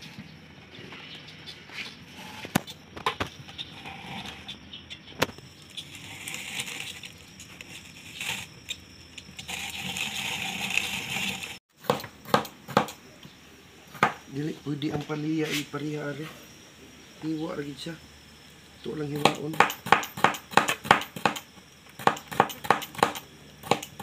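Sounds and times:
rotary grater grinding rasp: 0:03.5 - 0:04.6, 0:05.5 - 0:11.6.

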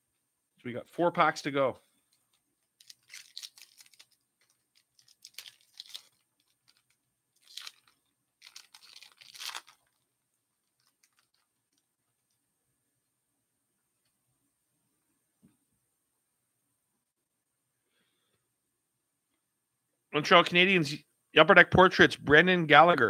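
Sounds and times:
foil wrapper tearing and crinkling: 0:02.8 - 0:10.0, 0:10.6 - 0:11.8.

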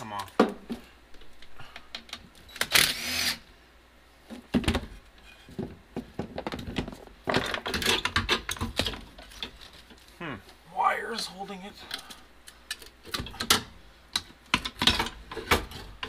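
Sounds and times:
impact driver whirring: 0:02.6 - 0:03.4.

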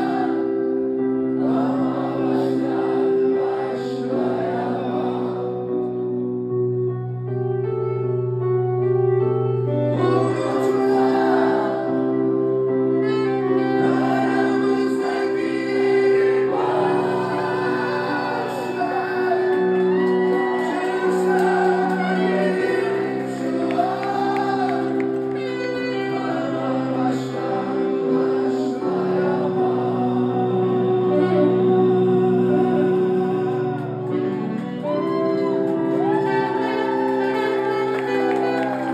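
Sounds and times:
keyboard chords: 0:00.0 - 0:38.9
man singing into microphone: 0:09.9 - 0:12.1, 0:13.0 - 0:35.1.

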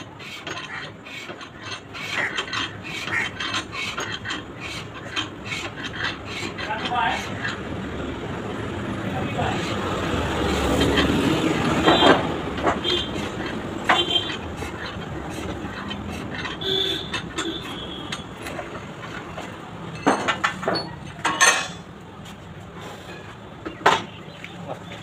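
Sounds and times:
steel tools clinking and scraping: 0:00.0 - 0:07.7, 0:09.2 - 0:22.0
steady background noise: 0:00.0 - 0:25.0
sharp metallic knocks: 0:10.3 - 0:21.9, 0:23.6 - 0:24.2.

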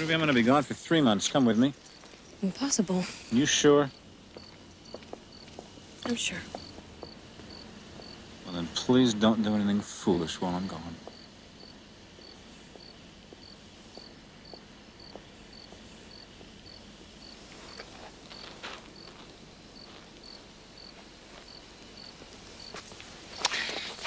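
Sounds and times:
cricket chirping: 0:00.0 - 0:24.0
faint rustles: 0:13.6 - 0:24.0.

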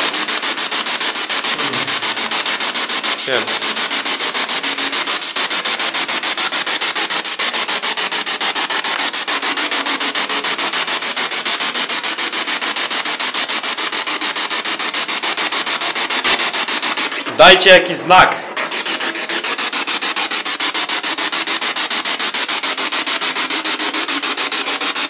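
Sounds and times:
pulsing radio static: 0:01.4 - 0:02.3, 0:03.2 - 0:03.7.

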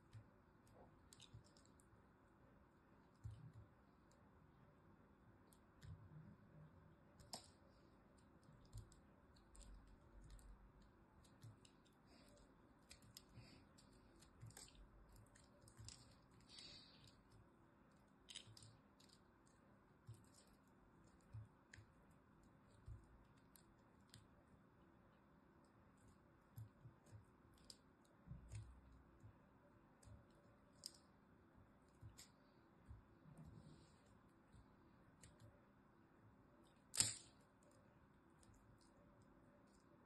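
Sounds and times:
blade cutting crumbly soap: 0:07.1 - 0:24.4, 0:36.6 - 0:37.7.

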